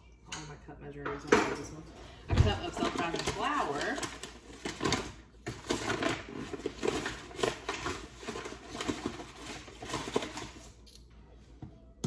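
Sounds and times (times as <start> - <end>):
paper bag rustling and crinkling: 2.4 - 10.8.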